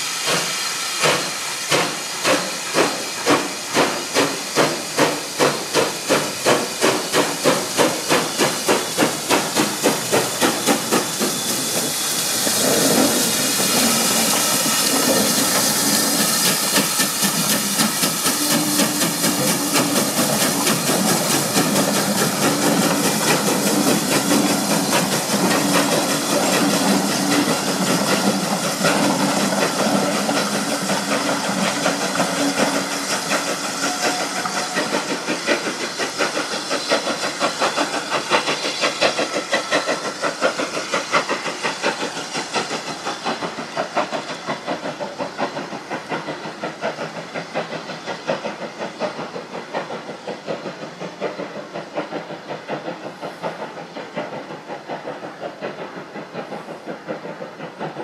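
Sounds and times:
steam locomotive chuffing: 0.0s - 58.0s.

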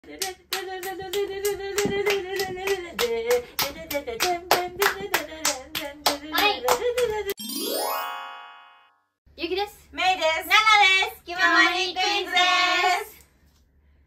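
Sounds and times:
woman singing: 0.0s - 7.4s
women clapping in rhythm: 0.0s - 7.4s.

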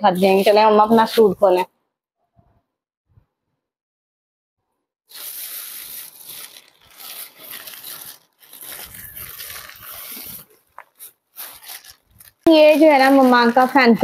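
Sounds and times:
plastic bag rustling: 5.1s - 14.0s.

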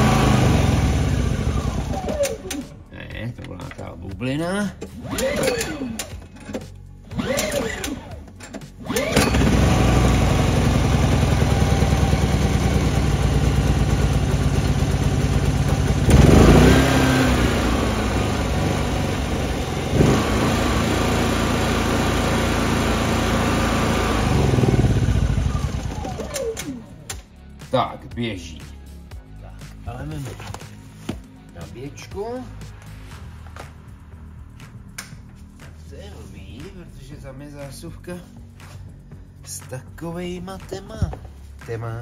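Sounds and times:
petrol generator starting and running: 0.0s - 2.7s, 4.8s - 27.2s.

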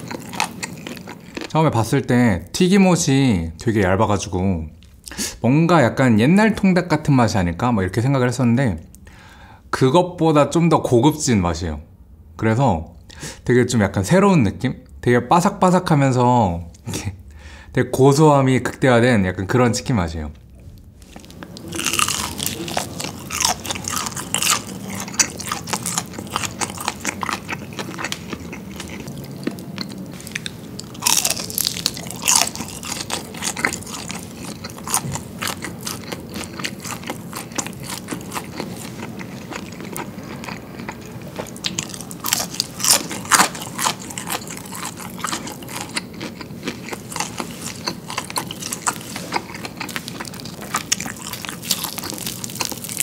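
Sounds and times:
crunching and chewing fried chicken: 0.0s - 2.5s, 20.9s - 53.0s.

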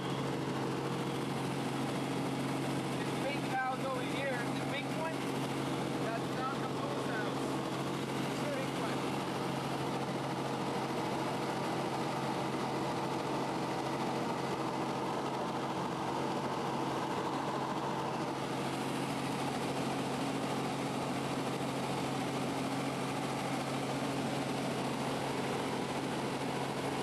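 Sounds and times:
helicopter engine and rotor drone: 0.0s - 27.0s.

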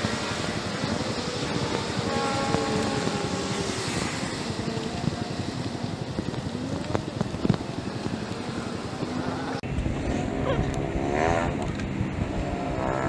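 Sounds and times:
bicycle road noise: 0.0s - 13.0s
vehicle engine passing: 0.0s - 13.0s
wind on microphone: 0.0s - 13.0s.

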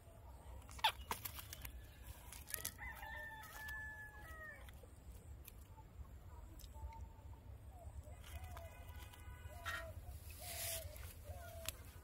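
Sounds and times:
faint rooster crowing: 2.5s - 4.8s.

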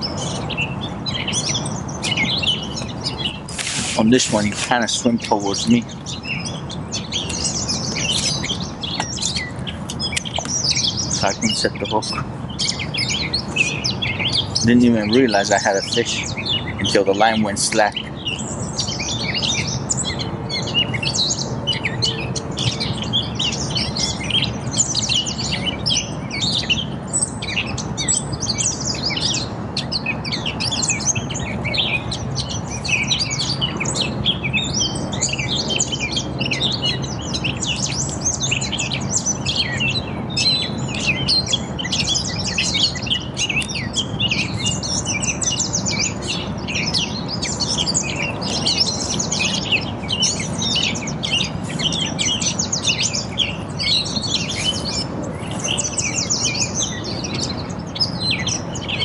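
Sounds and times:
songbirds chirping and singing: 0.0s - 59.0s.

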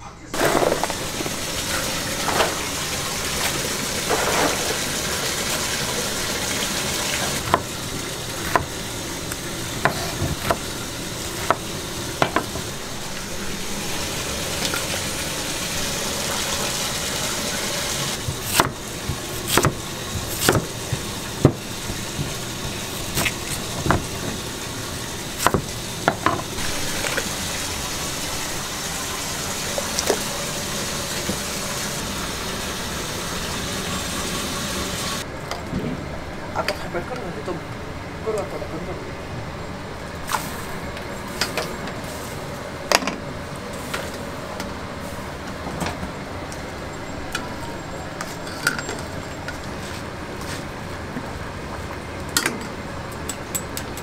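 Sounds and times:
water running into pot: 0.4s - 35.2s.

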